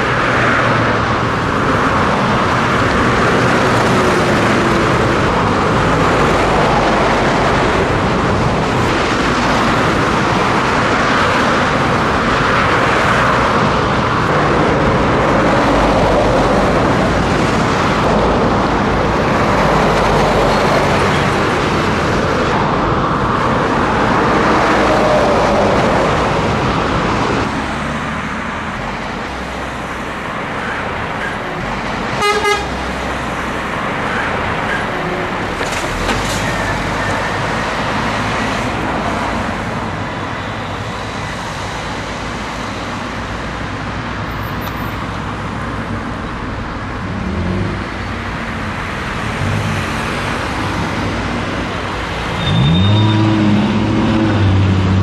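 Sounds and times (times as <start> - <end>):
truck engine and road noise: 0.0 - 55.0
vehicle horn toot: 31.4 - 32.8, 52.4 - 53.8.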